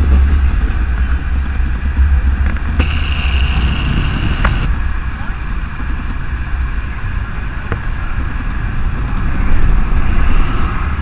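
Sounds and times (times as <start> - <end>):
city street noise: 0.0 - 11.0
trams rumbling pulling away: 0.0 - 11.0
sharp click: 2.5 - 4.7.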